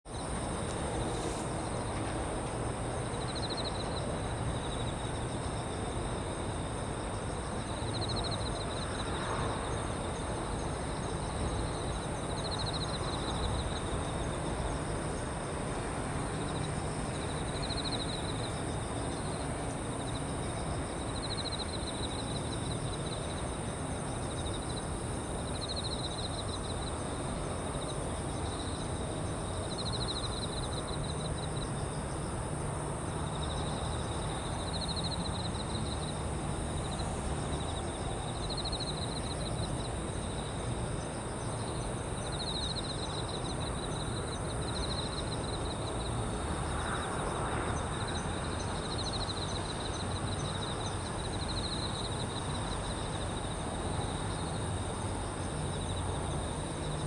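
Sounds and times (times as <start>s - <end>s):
crickets trilling: 0.1s - 57.0s
distant city rumble: 0.1s - 57.0s.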